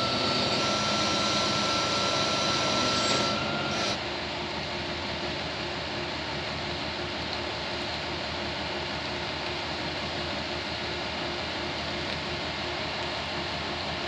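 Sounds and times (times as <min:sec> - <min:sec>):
thin high whine: 0:00.0 - 0:04.0
truck engine running: 0:00.0 - 0:14.0.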